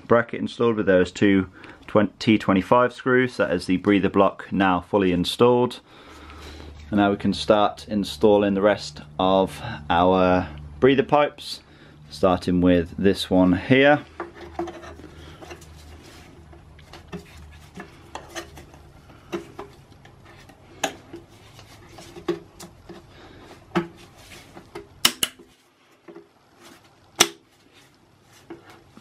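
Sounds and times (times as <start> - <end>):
plastic hose rubbing and scraping: 13.6 - 29.0.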